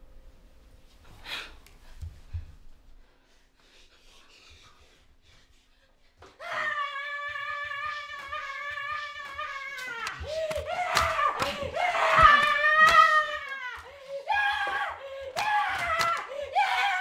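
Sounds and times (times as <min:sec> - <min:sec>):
person screaming: 0:06.4 - 0:17.0.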